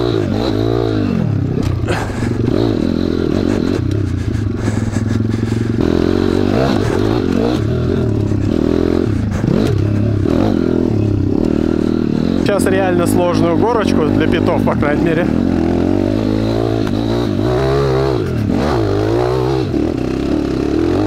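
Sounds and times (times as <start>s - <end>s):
motorcycle engine running: 0.0s - 21.0s
sharp clatter: 1.5s - 12.4s.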